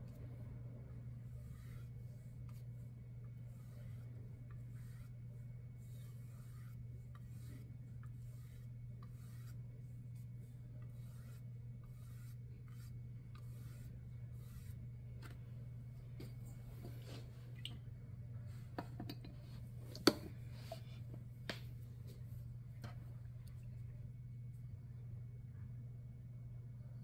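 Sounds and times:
steady low hum: 0.0 - 27.0
paintbrush swishing: 1.0 - 15.5.

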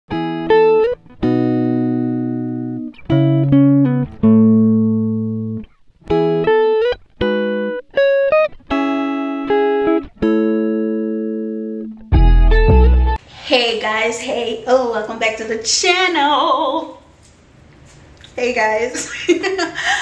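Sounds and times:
plucked guitar-like chords: 0.1 - 13.2.

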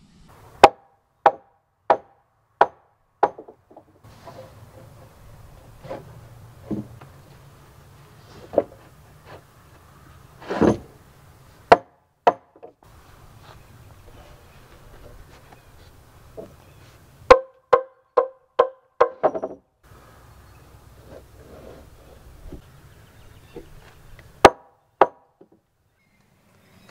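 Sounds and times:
wooden knocks on log timber: 0.6 - 5.0, 5.8 - 7.1, 11.7 - 12.8, 17.3 - 19.6.

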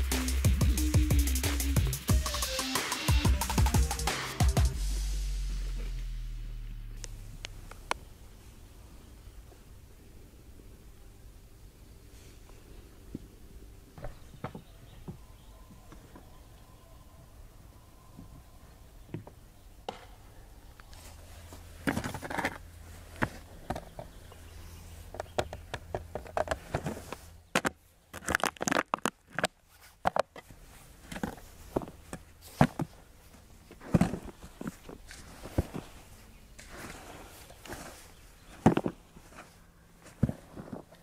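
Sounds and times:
metal shovel scraping: 33.8 - 41.0.

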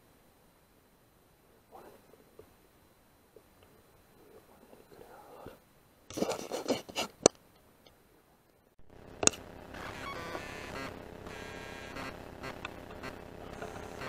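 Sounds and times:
background hum with faint tones: 0.0 - 14.0.

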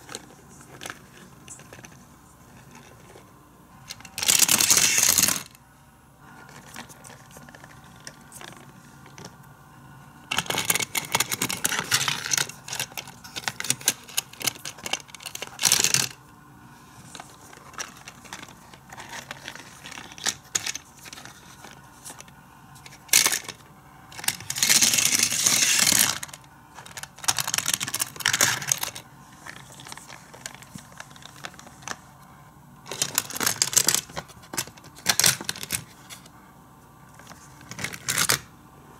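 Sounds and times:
plastic toy clicks and clattering: 3.9 - 5.6, 10.3 - 16.2, 17.6 - 22.3, 22.9 - 23.6, 24.2 - 32.0, 32.9 - 35.9
toy truck rattling on plastic track: 4.0 - 5.6, 10.3 - 16.2, 23.0 - 23.6, 24.2 - 31.6, 32.9 - 35.9.

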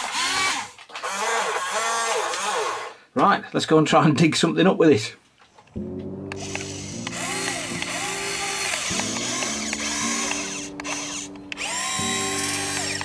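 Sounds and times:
toy excavator motors whirring: 0.0 - 3.0, 6.4 - 13.0.

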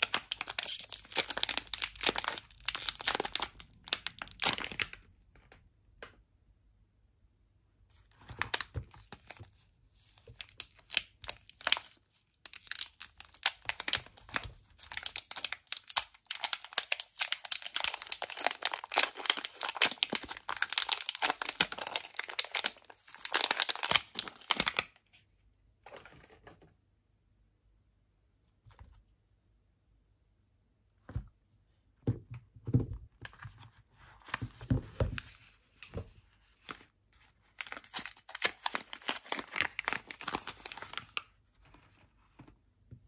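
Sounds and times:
plastic wrapper crinkling and tearing: 0.0 - 5.1, 10.1 - 25.0, 36.5 - 42.5
faint handling sounds: 40.2 - 43.0.

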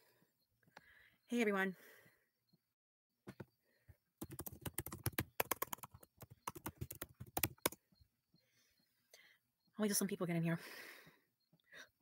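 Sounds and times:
computer keyboard typing: 4.2 - 7.8.

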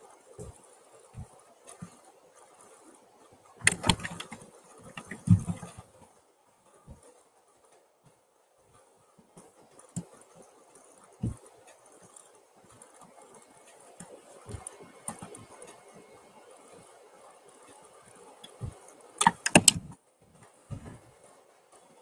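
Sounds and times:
clicks and knocks at desk: 3.6 - 5.8, 18.5 - 20.0
sharp thumps: 3.6 - 5.8, 18.6 - 20.0.

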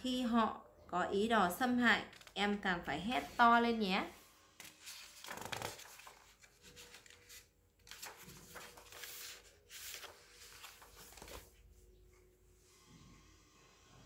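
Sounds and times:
book pages rustling: 2.0 - 2.6, 4.5 - 11.8.

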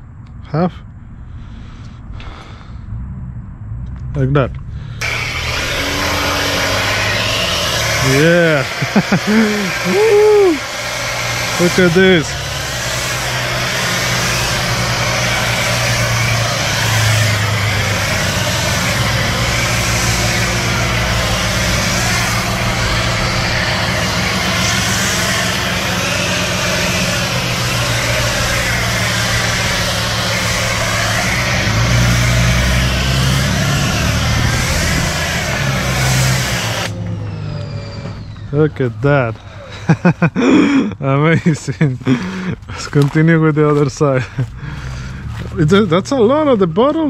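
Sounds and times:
pressure washer motor hum: 4.8 - 40.2
foam spraying hiss: 5.0 - 36.9.

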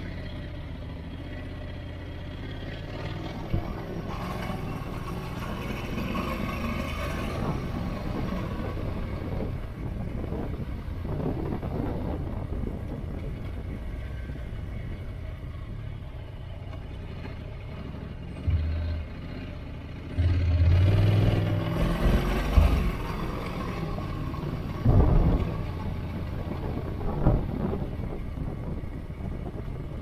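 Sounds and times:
motorcycle engine revving: 17.4 - 26.0.

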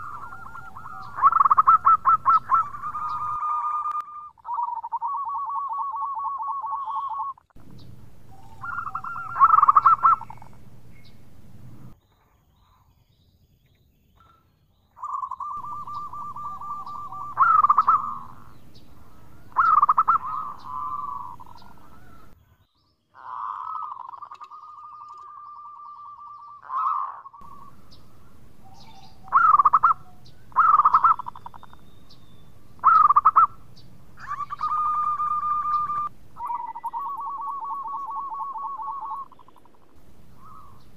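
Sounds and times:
dove cooing: 0.0 - 12.0, 15.0 - 22.4, 23.2 - 40.9
low hum: 7.6 - 12.0, 15.6 - 22.4, 27.4 - 40.9.

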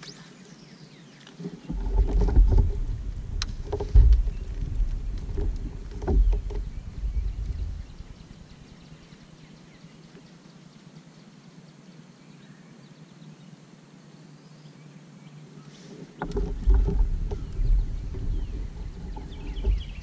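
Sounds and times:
knocks from kayak: 1.6 - 7.8, 16.1 - 20.0
low rumbling: 1.6 - 9.2, 16.1 - 20.0.

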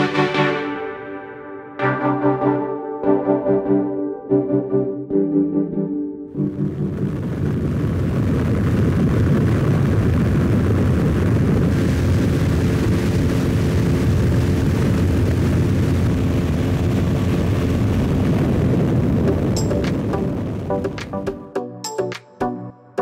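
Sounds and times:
wind rushing: 6.4 - 21.4
aircraft engine and propeller: 11.7 - 21.2.

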